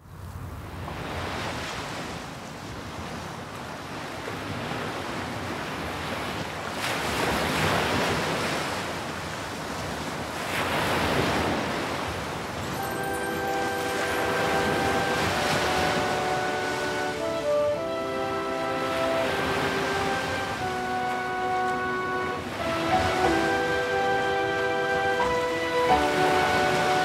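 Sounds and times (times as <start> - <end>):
waves washing onto shore: 0.1 - 27.0
held music notes: 12.7 - 27.0.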